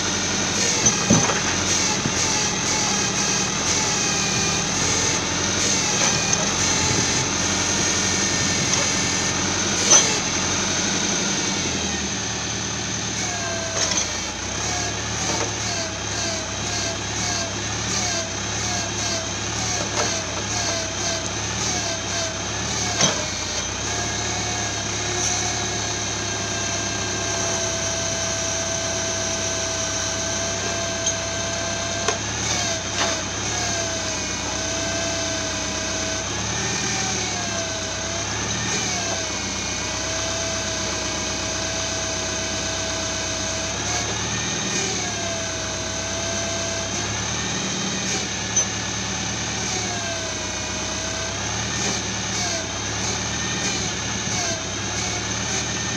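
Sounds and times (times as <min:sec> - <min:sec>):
hydraulic crane whine: 0:00.0 - 0:55.9
tractor engine running: 0:00.0 - 0:55.9.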